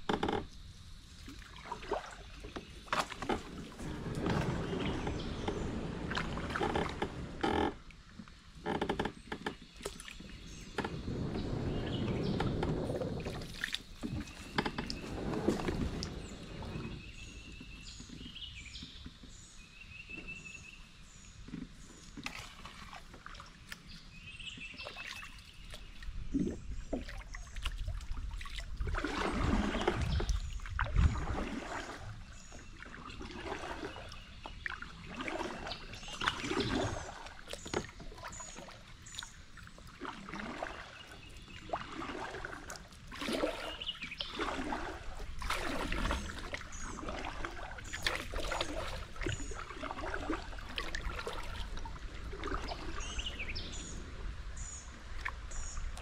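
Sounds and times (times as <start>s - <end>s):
paddle splashing through water: 0.0s - 56.0s
birds singing: 8.7s - 22.1s, 23.5s - 27.7s, 29.2s - 42.4s, 43.3s - 51.7s, 52.5s - 55.9s.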